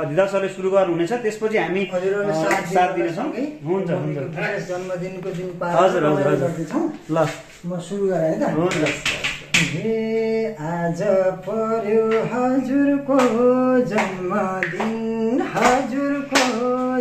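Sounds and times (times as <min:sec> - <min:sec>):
man singing unaccompanied: 0:01.0 - 0:07.0, 0:07.6 - 0:17.0
hand claps: 0:02.4 - 0:02.8, 0:08.6 - 0:09.9, 0:11.4 - 0:17.0.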